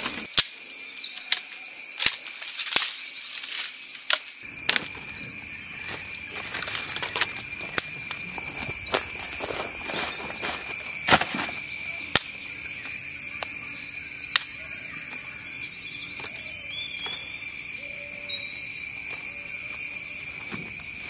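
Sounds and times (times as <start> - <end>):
forest insects droning: 0.0 - 21.0
dry leaves rustling: 2.0 - 12.2.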